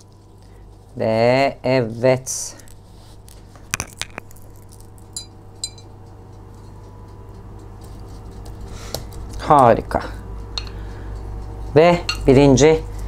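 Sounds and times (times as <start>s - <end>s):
glass bowl clinking: 3.8s - 4.4s.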